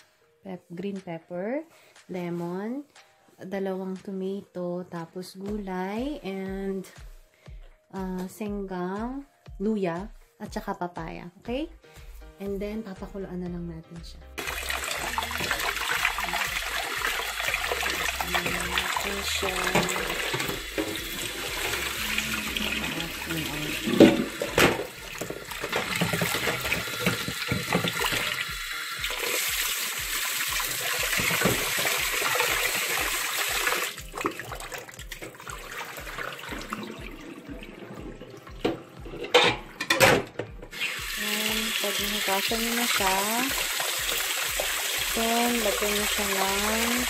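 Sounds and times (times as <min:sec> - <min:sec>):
tap water running into steel pot: 0:14.4 - 0:40.1, 0:40.7 - 0:47.0.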